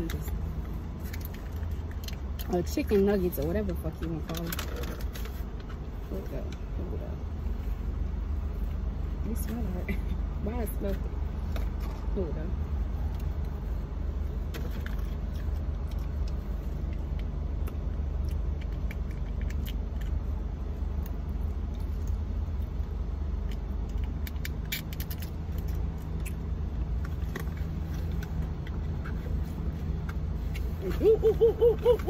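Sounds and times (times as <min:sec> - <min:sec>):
small clicks and rustles: 0:00.0 - 0:05.9, 0:14.4 - 0:31.0
car idling inside cabin: 0:00.0 - 0:32.0.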